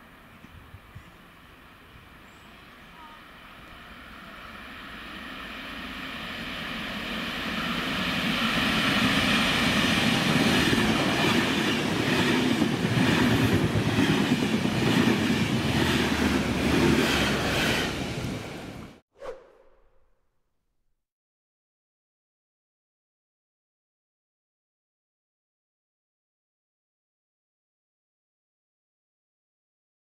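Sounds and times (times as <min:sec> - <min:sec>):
diesel locomotive passing: 0:01.0 - 0:19.0.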